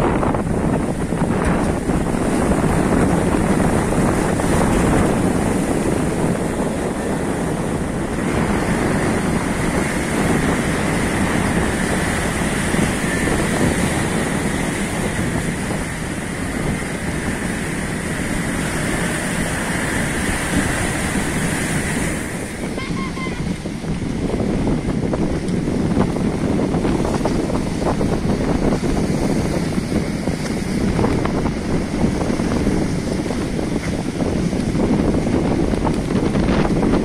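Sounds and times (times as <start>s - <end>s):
surf breaking against rocks: 0.0s - 24.3s
wind buffeting microphone: 0.0s - 37.0s.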